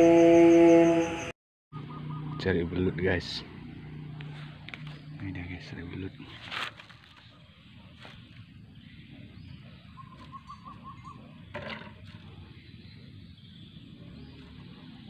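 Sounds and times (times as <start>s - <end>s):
animal chirping: 9.7s - 11.5s.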